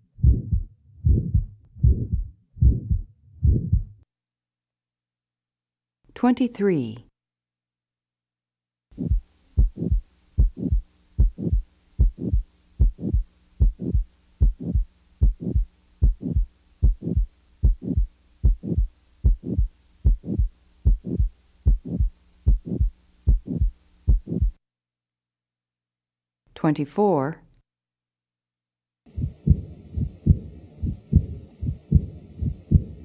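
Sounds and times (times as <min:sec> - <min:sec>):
heartbeat through stethoscope: 0:00.0 - 0:04.0, 0:09.0 - 0:24.6, 0:29.1 - 0:33.0
faint steady hum: 0:09.0 - 0:24.6, 0:29.1 - 0:33.0.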